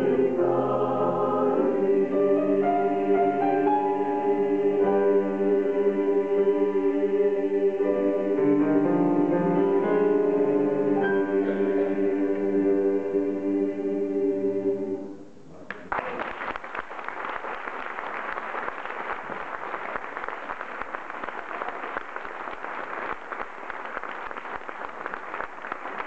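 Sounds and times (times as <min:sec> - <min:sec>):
audience applause: 0:15.7 - 0:26.0.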